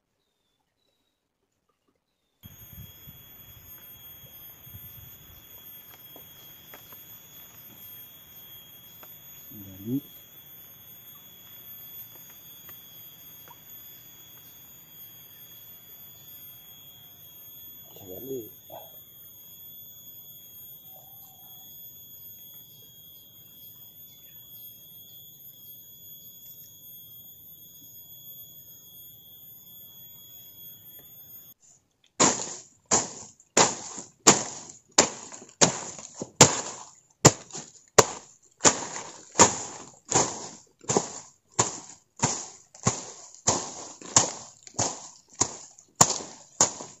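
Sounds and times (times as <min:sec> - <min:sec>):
faint high-pitched whine: 0:02.4 - 0:31.6
tool chopping into weeds and soil: 0:32.2 - 0:47.0.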